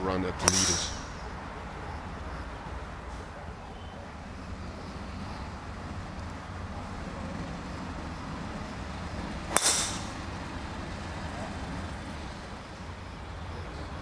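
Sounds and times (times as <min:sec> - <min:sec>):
low outdoor rumble: 0:00.0 - 0:14.0
golf club striking ball: 0:00.4 - 0:01.3, 0:09.4 - 0:10.4.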